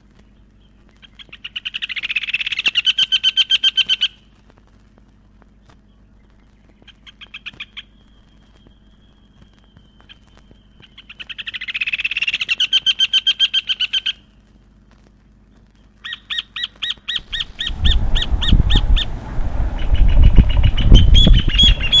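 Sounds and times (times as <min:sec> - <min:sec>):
bird trilling: 0:00.6 - 0:04.2, 0:06.7 - 0:14.3, 0:16.0 - 0:22.0
low rumbling noise: 0:17.1 - 0:22.0.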